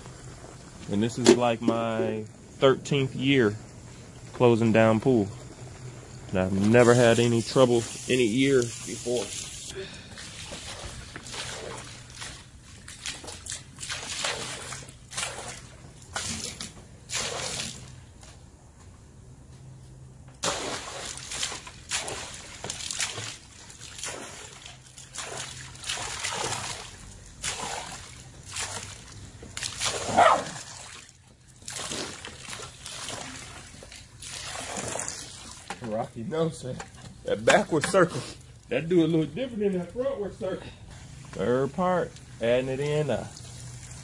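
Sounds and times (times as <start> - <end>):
water splashing and sloshing: 0.0 - 18.5, 20.2 - 44.0.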